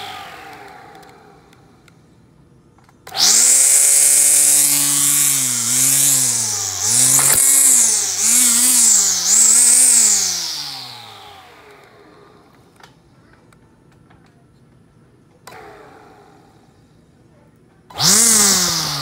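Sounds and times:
string trimmer motor whining: 0:00.0 - 0:01.9, 0:03.0 - 0:12.7, 0:17.9 - 0:19.0.

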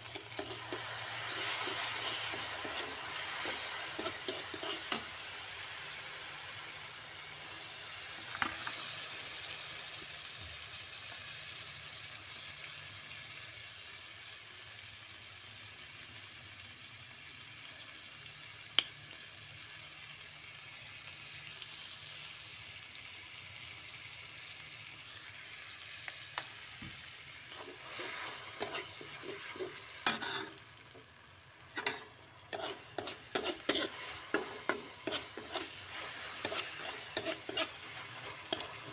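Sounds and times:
spatula scraping and clacking wok: 0:00.0 - 0:06.2, 0:27.5 - 0:38.9
onions sizzling in hot oil: 0:00.0 - 0:38.9.

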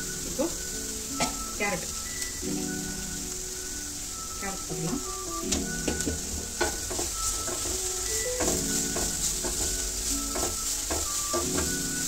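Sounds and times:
vegetables sizzling in oil: 0:00.0 - 0:12.0
metal spatula scraping pan: 0:05.5 - 0:12.0.

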